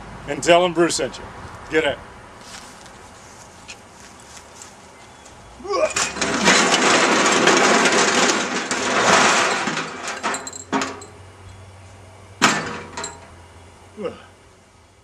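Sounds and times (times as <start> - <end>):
long crash with clattering: 6.0 - 11.0.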